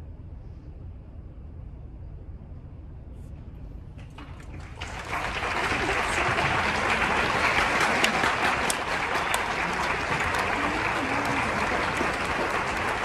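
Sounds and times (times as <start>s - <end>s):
applause from many hands: 4.3s - 13.0s.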